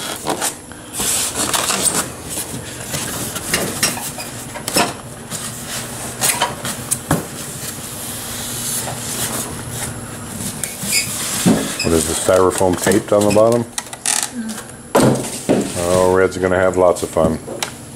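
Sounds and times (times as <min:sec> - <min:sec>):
styrofoam rubbing and scraping: 0:10.8 - 0:12.3.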